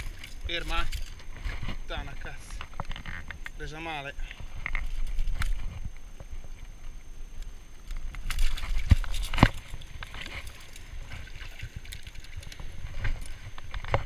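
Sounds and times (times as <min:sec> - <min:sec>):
sea water sloshing among rocks: 0:08.1 - 0:14.0.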